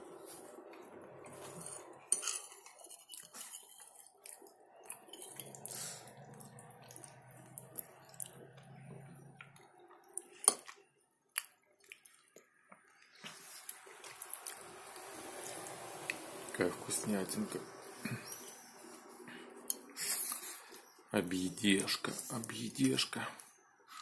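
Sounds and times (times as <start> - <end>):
person chewing food: 0.0 - 16.5.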